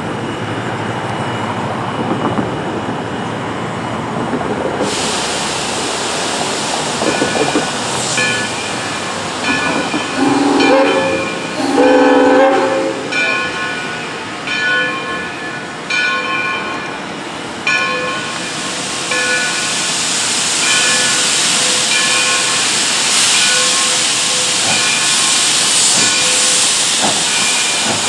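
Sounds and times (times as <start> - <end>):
steam hissing: 4.7 - 14.6, 16.8 - 28.0
locomotive bell ringing: 8.2 - 19.8, 20.6 - 25.5
steam locomotive whistle: 10.0 - 13.4.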